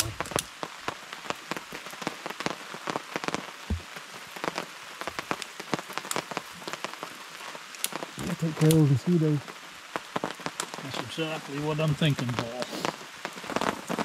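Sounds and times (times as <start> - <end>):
rain falling: 0.0 - 14.0
raindrops ticking on a surface: 0.0 - 14.0.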